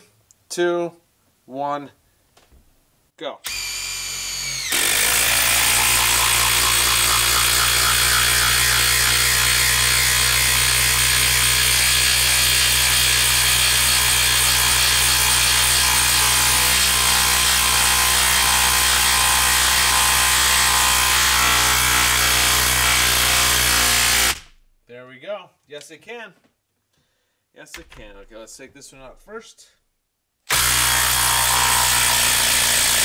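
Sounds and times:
impact driver hammering: 4.4s - 24.6s, 30.5s - 33.0s.

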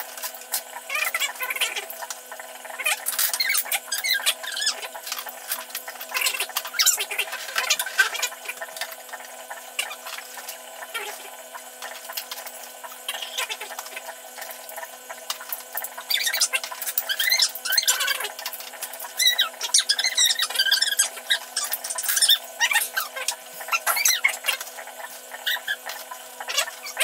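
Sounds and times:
high squeaky chirping: 2.8s - 5.0s, 16.0s - 18.3s, 19.1s - 24.5s, 25.3s - 27.0s.

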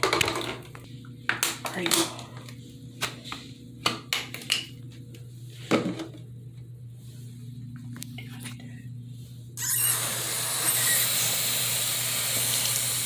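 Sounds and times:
steady low hum: 0.4s - 9.6s.

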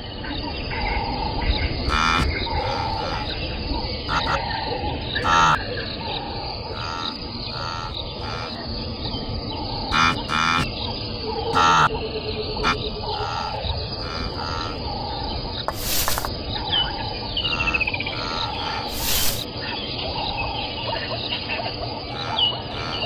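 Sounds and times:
insect noise: 0.0s - 23.0s
short animal calls: 1.9s - 3.3s, 4.1s - 4.4s, 5.2s - 5.6s, 6.7s - 8.6s, 9.9s - 10.7s, 11.5s - 11.9s, 12.6s - 14.8s, 15.7s - 16.3s, 17.4s - 19.5s, 22.1s - 23.0s.

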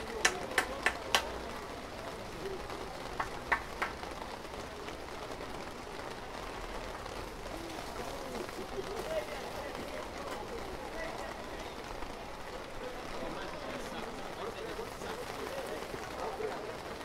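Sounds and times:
background bustle hiss: 0.0s - 17.0s.

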